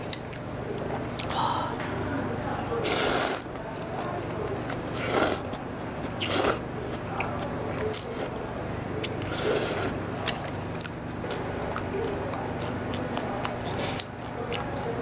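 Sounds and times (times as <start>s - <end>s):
noodles being slurped: 2.8s - 3.4s, 4.9s - 5.5s.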